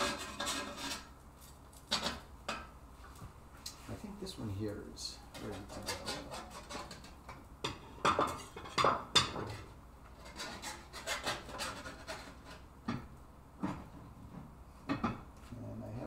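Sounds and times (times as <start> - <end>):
spatula scraping in frying pan: 0.0 - 1.2, 5.3 - 12.7.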